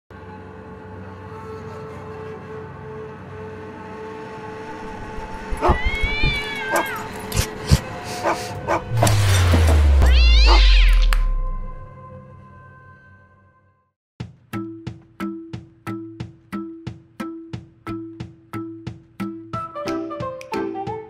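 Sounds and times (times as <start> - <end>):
cat meowing: 5.5 - 7.5, 10.0 - 11.7
deep falling whoosh: 8.6 - 12.0.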